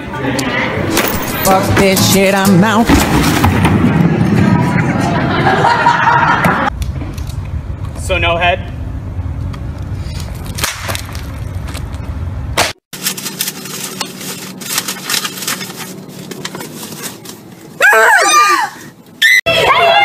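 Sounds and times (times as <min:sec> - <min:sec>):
street traffic rumble: 0:00.0 - 0:12.7
sharp crack: 0:10.5 - 0:11.3, 0:12.6 - 0:12.8
woman shrieking: 0:17.8 - 0:20.0.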